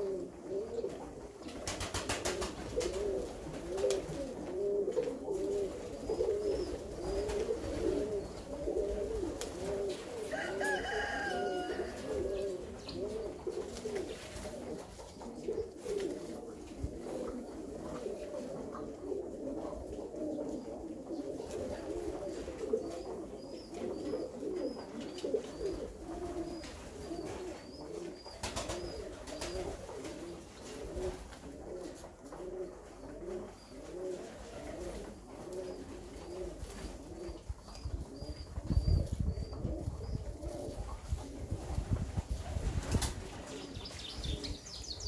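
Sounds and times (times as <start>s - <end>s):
pigeons cooing: 0.0s - 45.0s
wings flapping: 1.5s - 4.3s, 28.4s - 30.3s, 41.6s - 43.6s.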